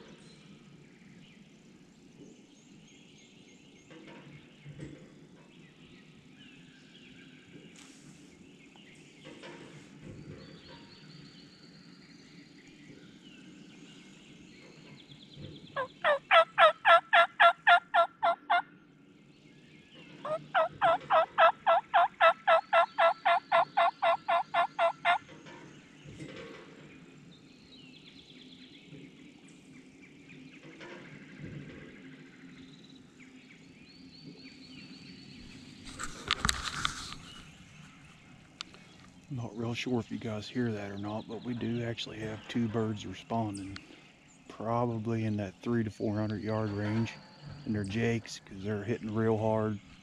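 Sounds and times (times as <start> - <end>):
turkey call hen yelps: 15.8 - 18.6, 20.3 - 25.2.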